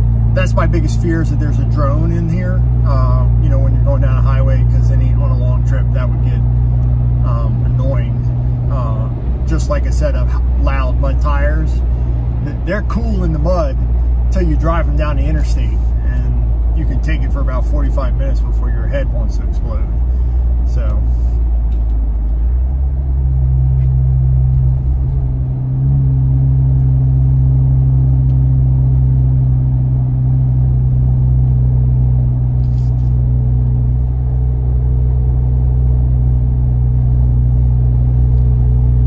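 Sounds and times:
car engine accelerating: 0.0s - 39.0s.

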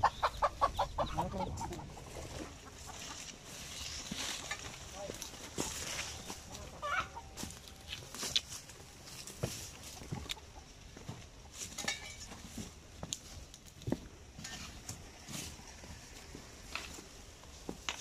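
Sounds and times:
chickens clucking: 0.0s - 13.5s
footsteps: 1.6s - 18.0s.

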